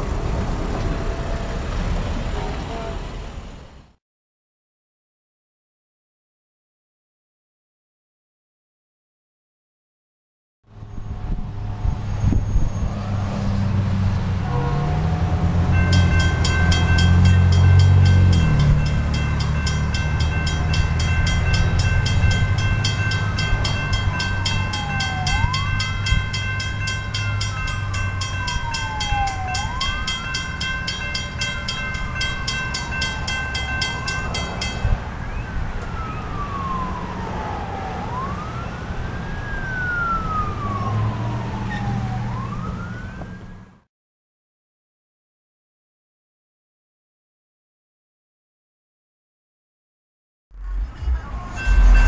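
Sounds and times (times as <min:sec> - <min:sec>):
railroad crossing bell ringing: 0:14.4 - 0:35.2, 0:50.7 - 0:52.0
siren wailing: 0:14.4 - 0:43.7, 0:50.6 - 0:52.0
low rumble: 0:50.5 - 0:52.0.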